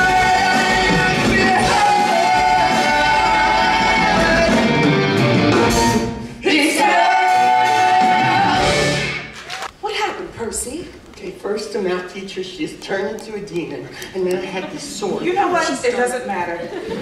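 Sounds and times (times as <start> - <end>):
rock band playing: 0.0 - 6.3, 7.3 - 9.6.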